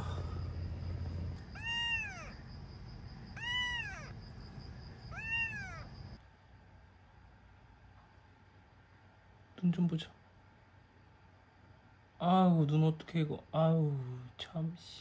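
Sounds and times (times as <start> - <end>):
kitten meowing: 1.4 - 2.4, 3.3 - 4.2, 5.1 - 6.2.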